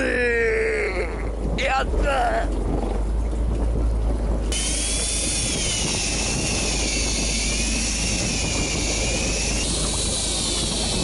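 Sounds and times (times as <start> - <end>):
boat rumble: 0.0 - 11.0
wind: 0.0 - 11.0
small motor whining: 4.5 - 11.0.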